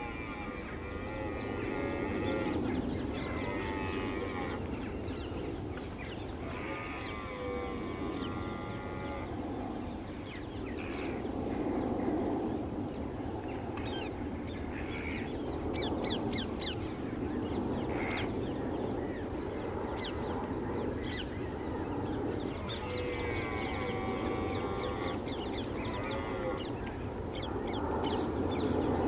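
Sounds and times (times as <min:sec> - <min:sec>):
birds calling: 0:00.0 - 0:09.5, 0:17.6 - 0:29.0
crows cawing: 0:25.8 - 0:26.6.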